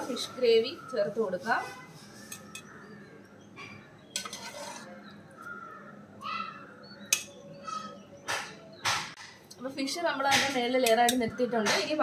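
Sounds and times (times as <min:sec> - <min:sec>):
metal spoon clinking on pot: 0:04.1 - 0:05.0, 0:07.1 - 0:07.4
bird calling: 0:04.8 - 0:09.2.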